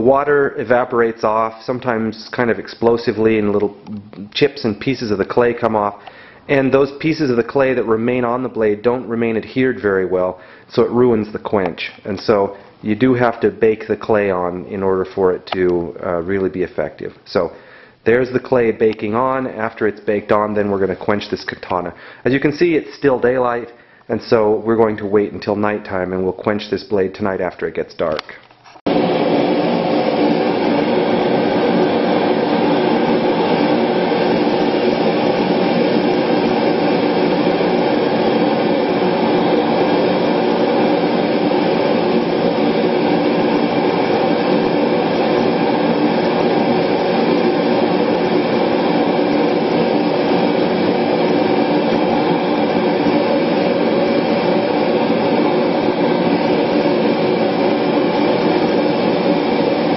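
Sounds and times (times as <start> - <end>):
gas forge roaring: 0.0 - 12.6, 28.9 - 59.9.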